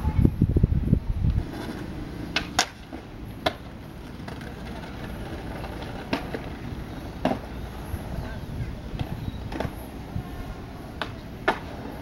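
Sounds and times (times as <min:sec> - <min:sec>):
skateboard wheels rolling on concrete: 0:00.0 - 0:12.0
skateboard clacks: 0:01.4 - 0:07.9, 0:08.9 - 0:10.0, 0:10.8 - 0:12.0.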